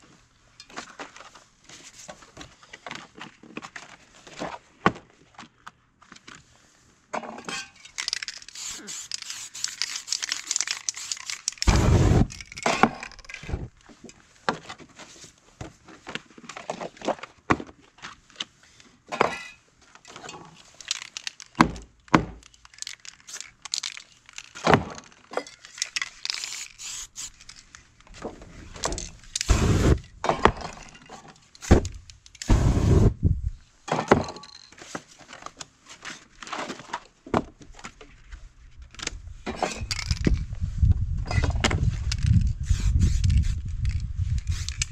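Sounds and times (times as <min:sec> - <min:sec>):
aerosol spray can hissing: 0:08.4 - 0:12.3, 0:26.3 - 0:27.4, 0:29.4 - 0:30.0, 0:32.4 - 0:33.2, 0:42.6 - 0:43.6, 0:44.4 - 0:44.9.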